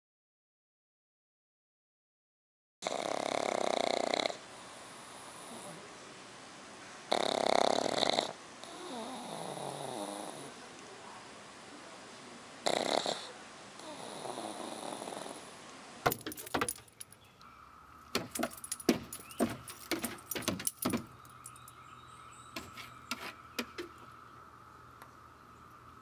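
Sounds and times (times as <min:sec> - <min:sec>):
dog snoring: 0:02.8 - 0:05.8, 0:07.1 - 0:10.6, 0:12.6 - 0:15.5
dog claws scratching wooden deck: 0:16.1 - 0:17.2, 0:18.1 - 0:21.7, 0:22.5 - 0:24.0.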